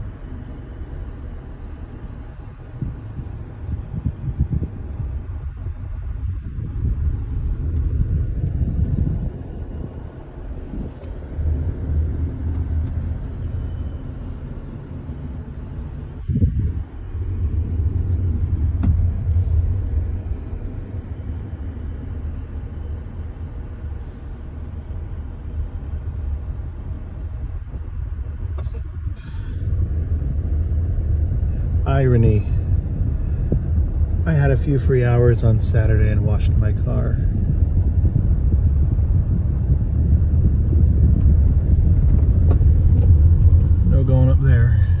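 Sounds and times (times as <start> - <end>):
car road and engine rumble: 0.0 - 45.0
sharp thump: 18.7 - 19.2.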